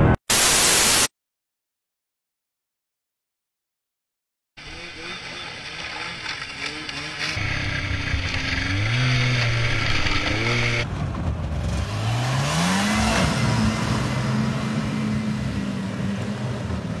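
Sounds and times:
snowmobile engines revving: 4.6s - 10.9s, 11.6s - 17.0s.

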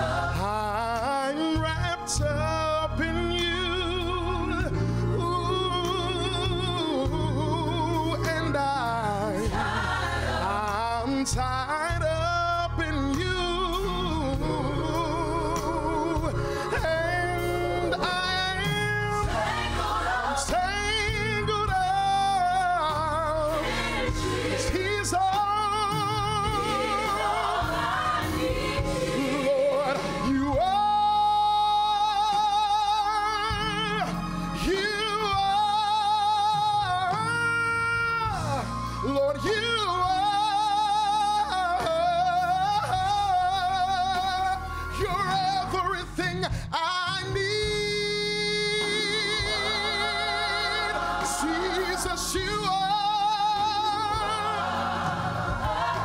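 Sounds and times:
choir singing: 0.0s - 2.2s, 9.0s - 11.4s, 13.8s - 32.4s, 48.2s - 56.0s
man singing lead: 0.0s - 9.4s, 10.4s - 19.4s, 28.8s - 54.6s.

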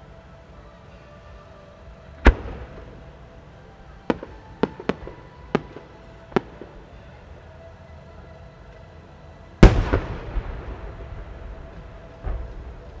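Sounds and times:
firework sharp cracks: 2.2s - 3.0s, 9.6s - 13.0s
firework launch boom: 9.6s - 11.6s.

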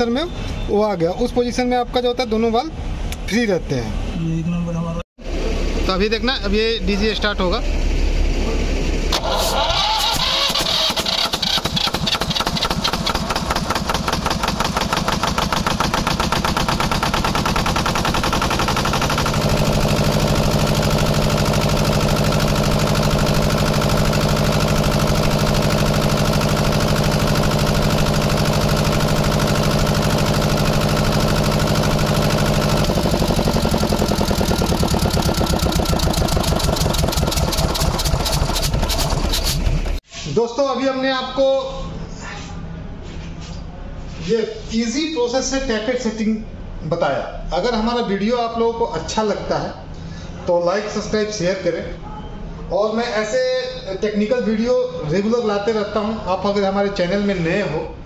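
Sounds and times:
diesel generator engine running: 5.2s - 40.1s.

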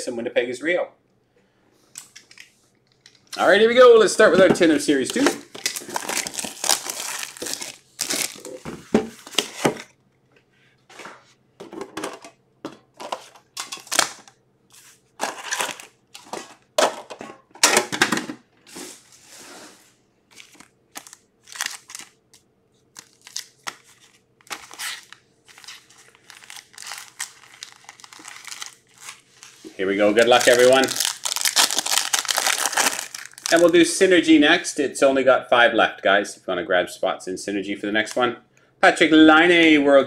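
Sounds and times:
plastic shrink-wrap crinkling: 4.9s - 8.6s, 20.3s - 22.2s, 22.9s - 33.8s.

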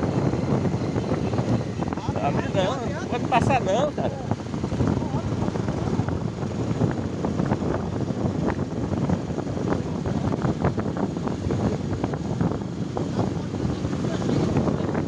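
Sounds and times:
motorcycle riding slowly: 0.0s - 15.0s
wind buffeting microphone: 0.0s - 15.0s.

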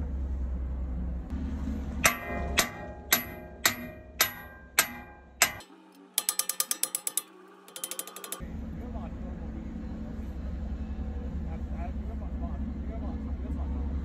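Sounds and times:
metal-on-metal strikes: 2.0s - 8.4s
ratchet wrench clicking: 2.1s - 8.4s.

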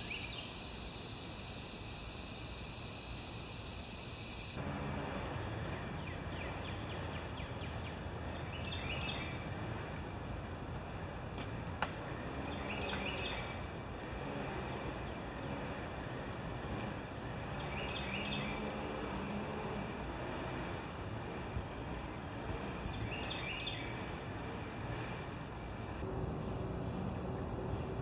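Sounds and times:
bird chirping: 0.0s - 0.8s, 5.7s - 9.4s, 12.4s - 13.6s, 17.3s - 18.8s, 22.8s - 24.1s, 26.1s - 28.0s.

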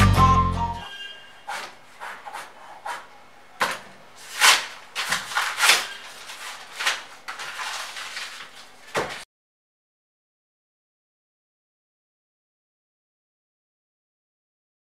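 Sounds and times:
paper crinkling: 3.7s - 9.3s.

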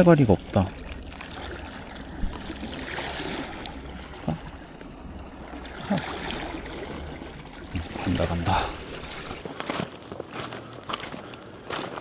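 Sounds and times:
low rumble: 0.0s - 9.4s
small waves lapping on rocks: 0.0s - 9.8s.

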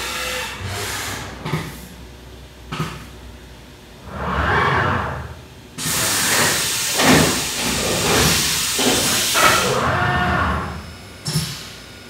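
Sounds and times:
low mechanical machine sounds: 0.2s - 12.0s
compressed air hissing: 4.0s - 9.8s.

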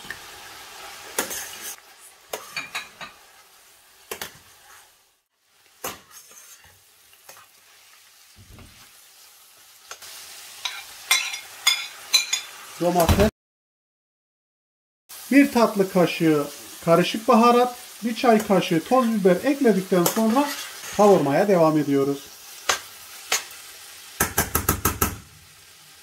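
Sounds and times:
food sizzling in a frying pan: 0.0s - 13.3s, 15.1s - 26.0s
metal spoon scraping a pan: 1.2s - 3.4s, 4.1s - 4.9s, 5.8s - 8.0s, 10.6s - 12.6s, 20.0s - 21.2s.

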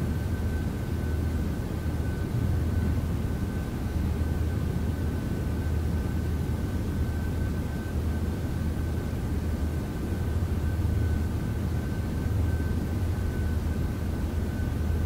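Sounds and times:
low hum and rumble: 0.0s - 15.0s.

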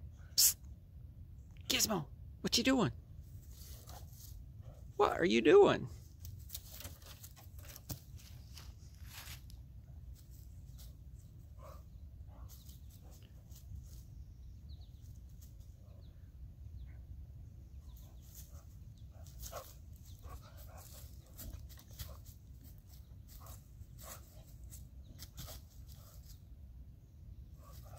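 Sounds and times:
paws rustling dry leaves: 6.2s - 11.3s, 17.9s - 26.4s
faint dog noises: 11.4s - 14.0s, 15.6s - 26.4s.

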